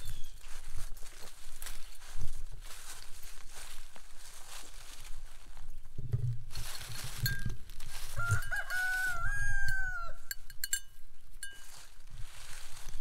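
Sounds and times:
rooster crowing: 7.9s - 10.4s.

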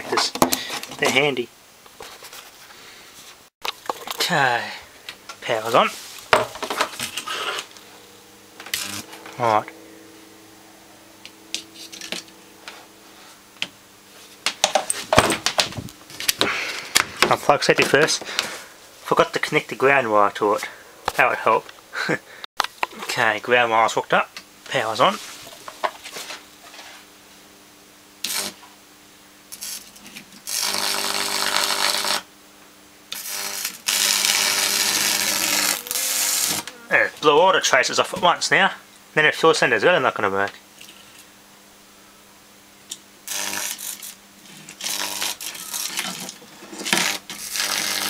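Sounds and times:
mains hum: 0.0s - 48.0s
transformer hum: 3.7s - 22.4s
loud buzzing electric arcs: 5.0s - 19.6s, 28.2s - 28.8s, 29.5s - 32.3s, 33.1s - 37.4s, 42.9s - 48.0s
electrical crackle: 5.7s - 13.6s, 28.2s - 28.6s, 29.5s - 32.3s, 33.2s - 36.7s, 43.2s - 48.0s.

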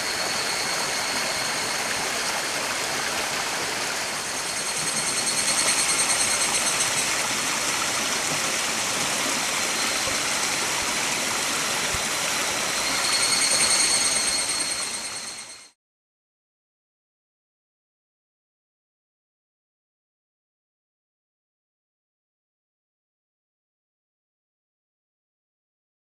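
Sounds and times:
stream rushing over rocks: 0.0s - 15.3s
high thin trill: 0.0s - 15.8s.

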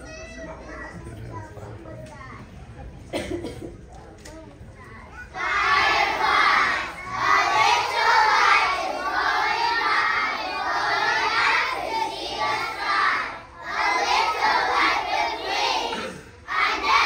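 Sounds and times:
children singing in unison: 5.4s - 17.0s.

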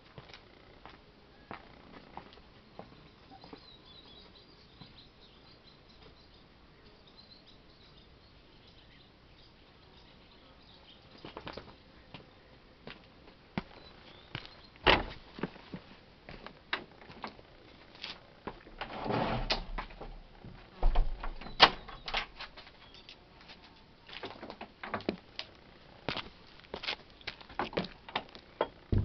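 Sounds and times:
small birds chirping: 2.6s - 12.6s, 13.6s - 14.8s, 21.3s - 24.2s.

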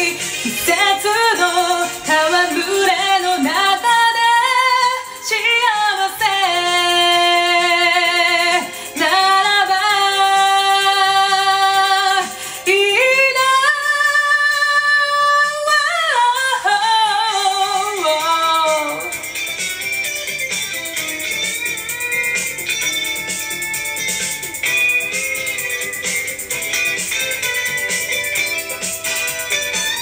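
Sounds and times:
woman singing with vibrato: 0.0s - 19.2s
karaoke backing track: 0.0s - 30.0s.

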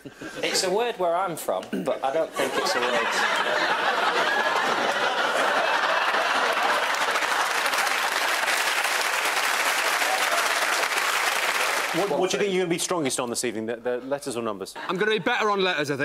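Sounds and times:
audience laughing: 2.3s - 8.7s
audience applauding: 3.4s - 12.2s.

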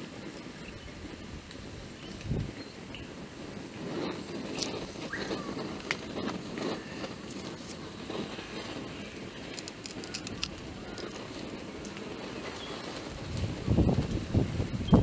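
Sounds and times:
outdoor background noise: 0.0s - 15.0s
stems snapping with crisp clicks: 9.5s - 11.1s.

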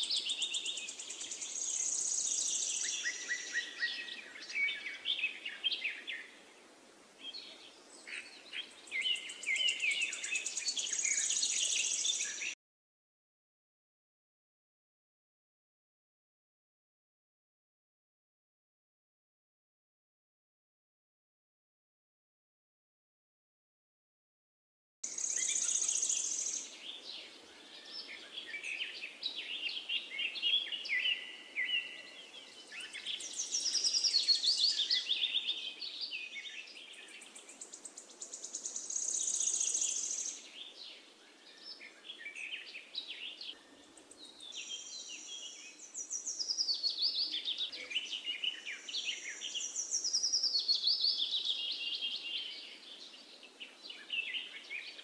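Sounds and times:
faint background hiss: 0.0s - 12.6s, 25.0s - 55.0s
songbirds chirping and trilling: 0.0s - 12.6s, 25.0s - 55.0s.

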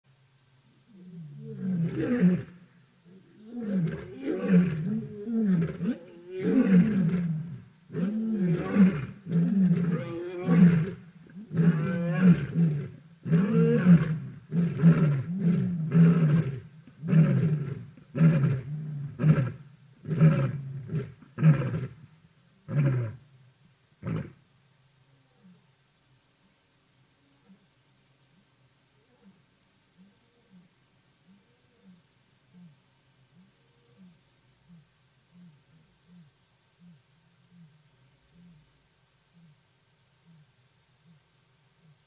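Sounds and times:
lion roaring: 0.9s - 22.0s.

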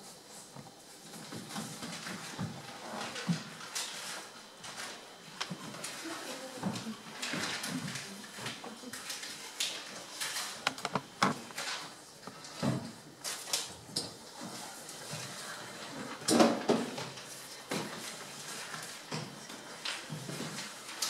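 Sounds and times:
props clicking and knocking: 10.6s - 11.6s.

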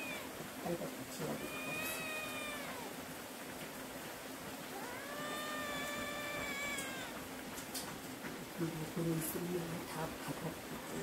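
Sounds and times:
cat meowing: 0.0s - 0.4s, 1.3s - 3.0s, 4.7s - 7.3s
heavy rain hiss: 0.0s - 11.0s.

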